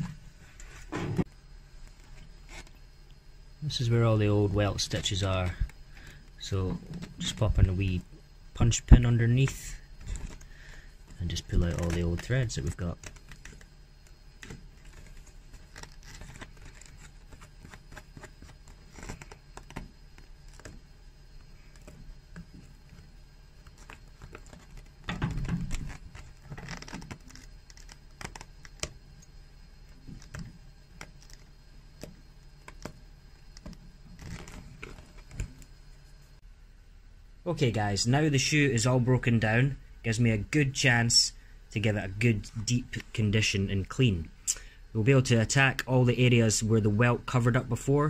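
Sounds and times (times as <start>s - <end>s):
pick scratching stitches: 1.9s - 2.8s, 4.4s - 35.7s.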